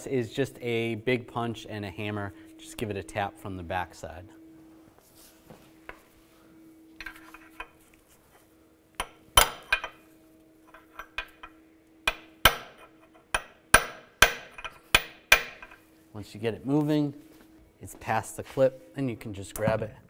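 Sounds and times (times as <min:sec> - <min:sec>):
hammer striking metal punch: 0:09.0 - 0:10.0, 0:10.8 - 0:15.8.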